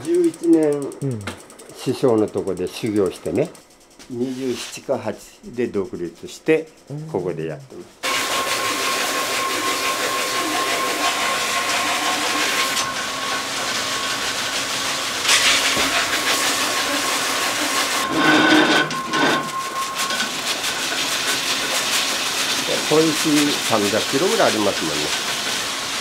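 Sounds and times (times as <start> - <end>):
blade grinding against stone: 8.0 - 25.7
grinding stone spinning: 8.0 - 26.0.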